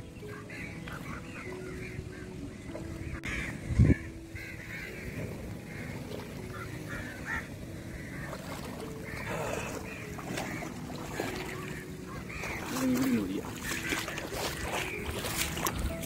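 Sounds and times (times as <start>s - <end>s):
water sloshing around wading legs: 4.3s - 16.0s.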